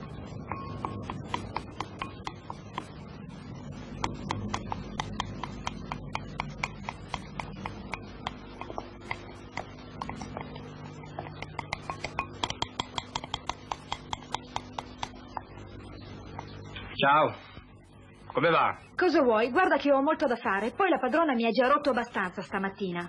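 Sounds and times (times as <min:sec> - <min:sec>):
utensil beating against bowl: 0:00.0 - 0:03.0, 0:03.9 - 0:15.6
low steady hum: 0:00.0 - 0:23.0.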